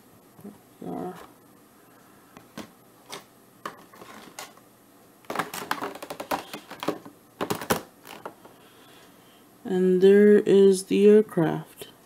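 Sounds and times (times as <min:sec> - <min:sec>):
plastic tray clicking and crackling: 0:05.3 - 0:08.4.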